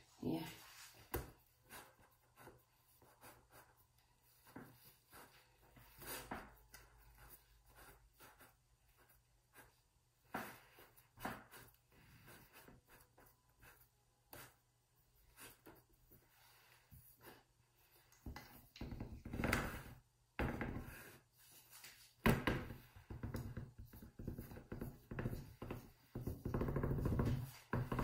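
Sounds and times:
fingers rubbing pastry dough: 0:01.1 - 0:18.2, 0:22.9 - 0:28.0.

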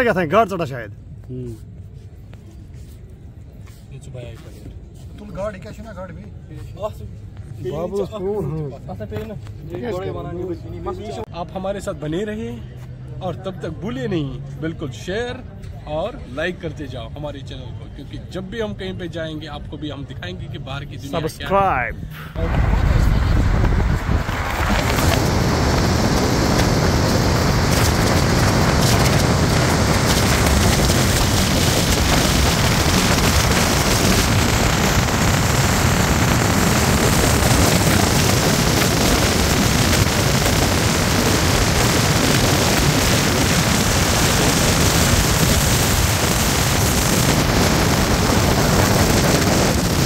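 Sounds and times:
wind buffeting microphone: 0:22.4 - 0:50.0.

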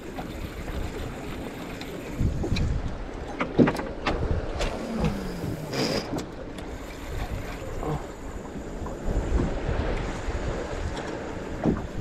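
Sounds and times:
wind on microphone: 0:00.0 - 0:03.2, 0:04.0 - 0:06.2, 0:06.8 - 0:12.0
water slapping against boat hull: 0:00.0 - 0:06.5, 0:09.2 - 0:12.0.

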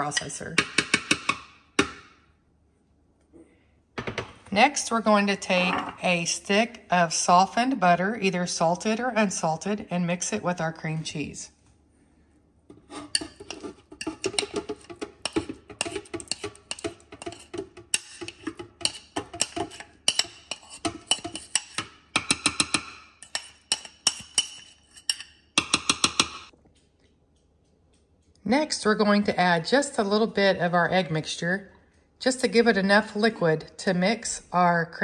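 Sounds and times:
metal utensil scraping ceramic bowl: 0:12.7 - 0:26.4.

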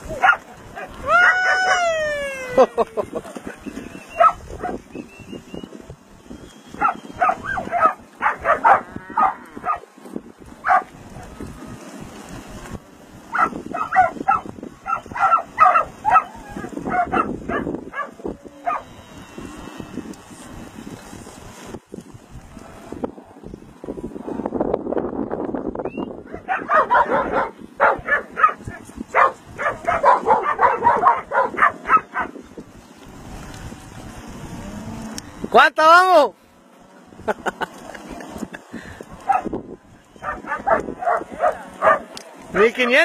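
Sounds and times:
dogs barking: 0:00.1 - 0:02.0, 0:03.4 - 0:04.8, 0:06.8 - 0:09.9, 0:10.6 - 0:11.3, 0:13.3 - 0:18.9, 0:26.2 - 0:32.4, 0:39.2 - 0:39.6, 0:40.2 - 0:42.2.

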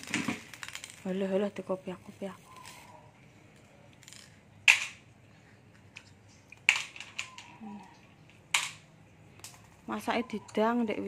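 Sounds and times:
plastic parts clacking and clicking: 0:00.0 - 0:01.2, 0:03.5 - 0:05.0, 0:05.9 - 0:09.7.

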